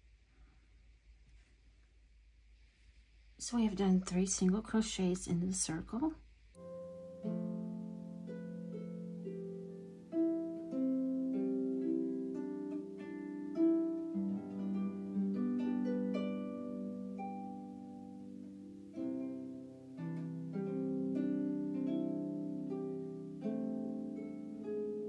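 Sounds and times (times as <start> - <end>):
gentle plucked instrumental music: 6.6 - 25.0.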